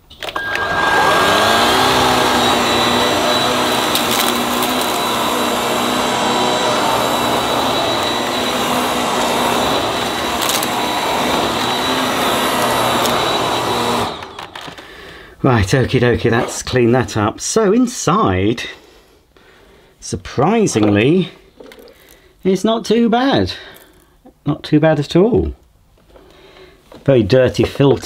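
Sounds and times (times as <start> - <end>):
vacuum cleaner motor whine: 0.2 - 14.8.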